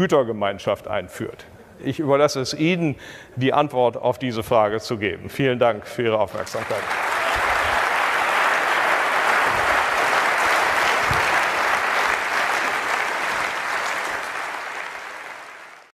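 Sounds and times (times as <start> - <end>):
audience applauding: 6.4 - 16.0.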